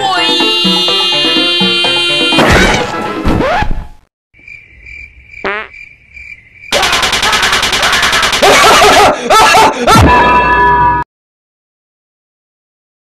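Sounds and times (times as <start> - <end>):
music: 0.0 - 3.4
distorted machine-gun rattle: 6.7 - 8.9.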